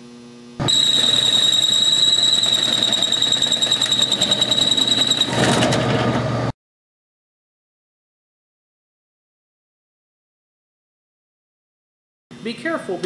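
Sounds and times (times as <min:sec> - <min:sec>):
high-pitched squeal: 0:00.6 - 0:05.6
fly cutter cutting sheet metal: 0:00.6 - 0:05.8.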